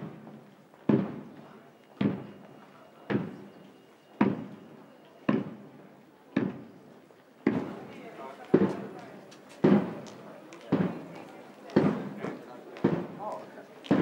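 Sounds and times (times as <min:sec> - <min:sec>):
marching drum strikes: 0:00.9 - 0:01.2, 0:02.0 - 0:02.4, 0:07.4 - 0:07.9, 0:08.5 - 0:14.0.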